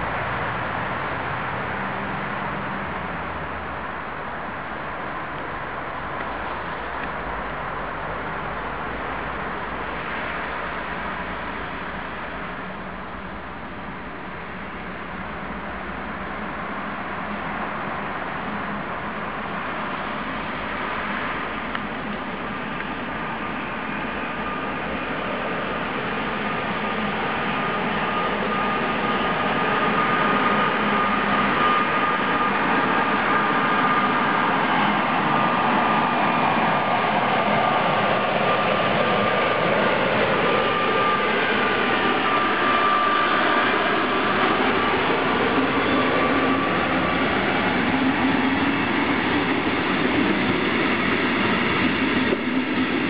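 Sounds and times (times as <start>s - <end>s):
train wheels rumbling on rails: 0.0s - 53.0s
thin high whine: 21.0s - 53.0s.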